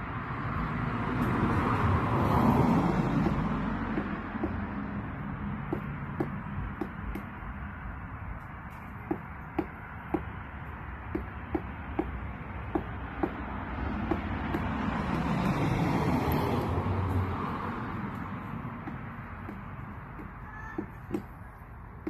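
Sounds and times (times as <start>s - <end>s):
woodpecker knocking on tree: 2.9s - 4.9s, 5.6s - 7.4s, 8.7s - 16.8s, 18.1s - 22.0s.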